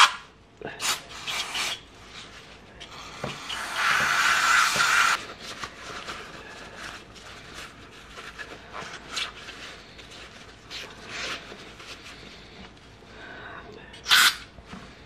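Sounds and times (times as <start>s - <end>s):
paper towel rustling: 5.2s - 12.8s.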